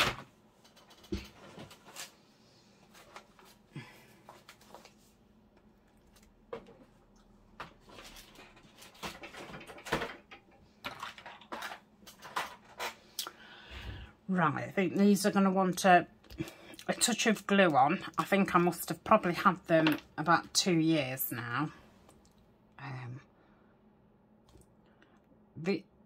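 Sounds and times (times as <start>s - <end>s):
clicks taps and rustles: 4.3s - 12.9s.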